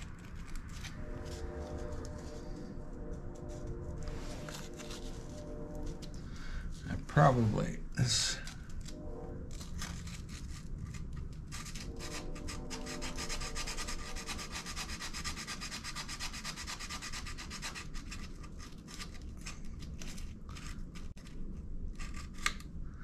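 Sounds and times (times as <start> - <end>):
sandpaper rubbing back and forth: 9.6 - 21.2.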